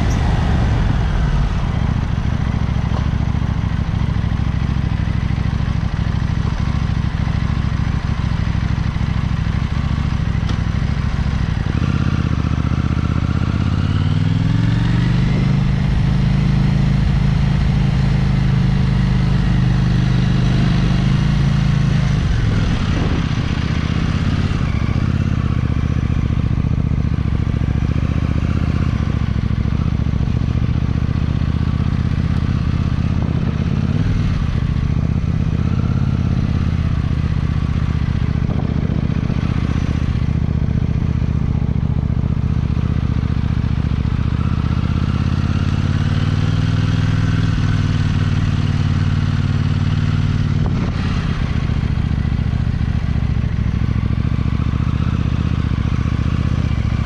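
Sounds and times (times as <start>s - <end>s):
motorcycle engine running at low revs: 0.0s - 57.0s.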